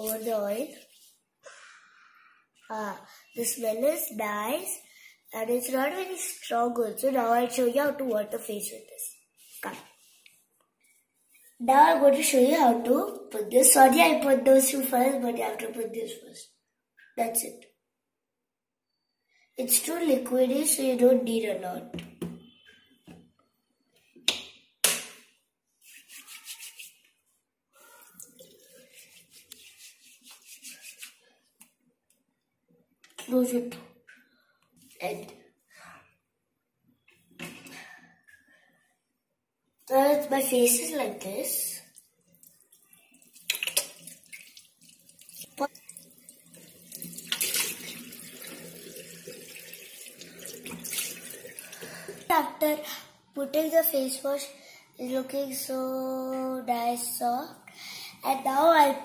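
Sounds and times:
wet hands rubbing lather: 0.1 - 1.2, 25.8 - 27.1, 28.0 - 31.7
water splashing on face: 41.8 - 52.3
tap water running into basin: 41.8 - 52.4.

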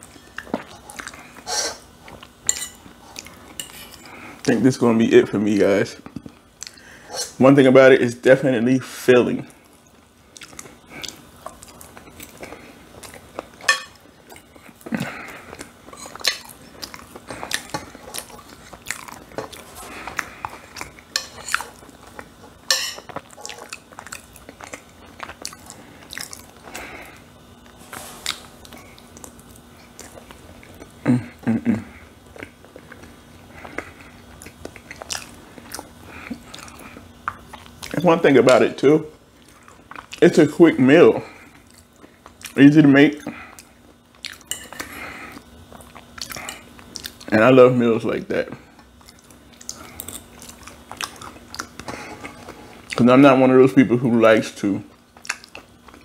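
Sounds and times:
person chewing: 0.1 - 4.5, 9.6 - 38.0, 39.4 - 40.2, 41.4 - 42.6, 43.2 - 47.3, 48.7 - 53.0, 54.9 - 56.0.

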